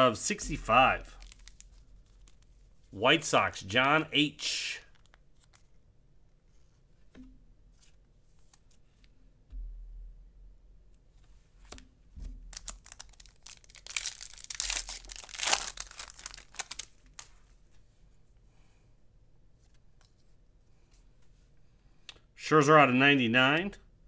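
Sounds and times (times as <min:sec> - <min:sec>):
cards ticking: 0:01.0 - 0:02.5, 0:12.6 - 0:17.3
wrapper crinkling: 0:01.0 - 0:02.7, 0:12.5 - 0:17.4.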